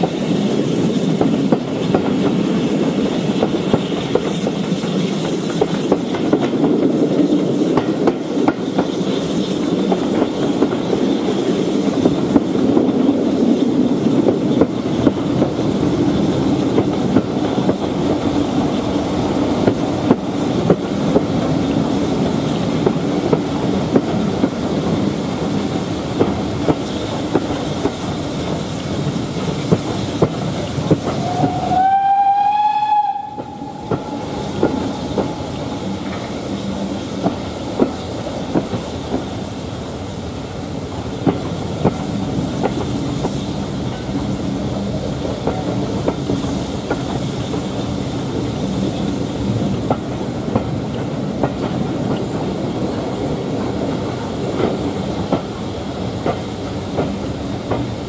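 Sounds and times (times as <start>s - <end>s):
train wheels clicking over rail joints: 0.0s - 58.0s
steam whistle blast: 31.1s - 36.1s.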